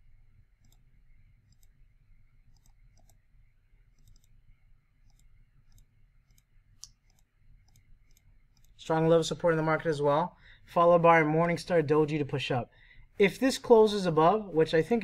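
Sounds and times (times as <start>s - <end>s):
faint computer mouse clicks: 0.6s - 1.8s, 2.5s - 3.2s, 3.9s - 4.4s, 5.0s - 8.8s.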